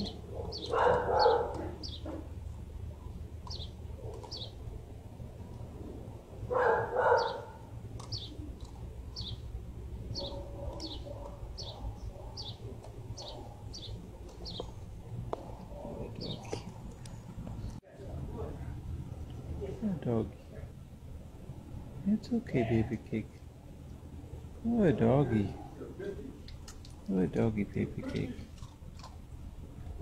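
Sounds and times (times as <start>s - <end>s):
small bird chirping: 0.0s - 2.2s, 3.4s - 4.6s, 7.1s - 9.5s, 10.1s - 14.8s
dog barking: 0.0s - 2.3s, 6.5s - 7.7s, 10.1s - 12.6s, 13.2s - 13.8s
steady low hum: 0.0s - 30.0s.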